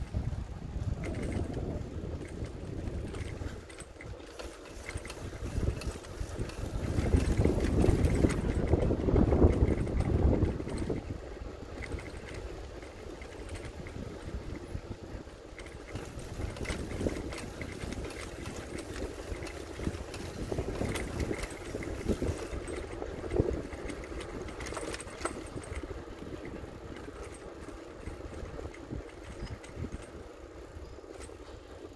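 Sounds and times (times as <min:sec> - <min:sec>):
bicycle tyres rolling: 0:00.0 - 0:31.9
bike rattles and clicks: 0:00.0 - 0:31.9.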